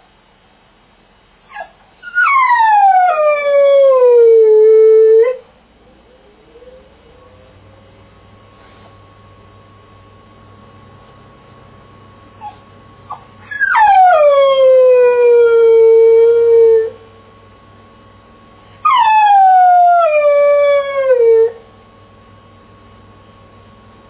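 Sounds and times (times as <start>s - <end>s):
dog yipping and howling: 1.4s - 5.4s, 12.3s - 17.0s, 18.8s - 21.6s.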